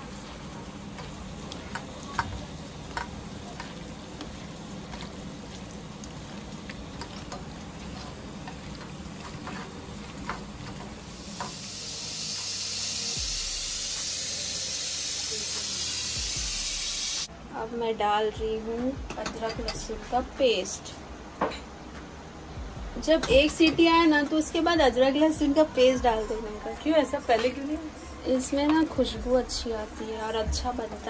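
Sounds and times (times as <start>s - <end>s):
pressure cooker steam hissing: 11.0s - 17.3s.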